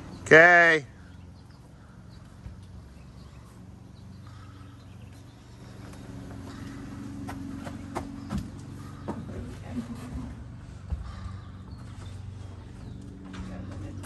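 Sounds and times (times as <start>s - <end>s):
footsteps on concrete: 10.1s - 14.0s.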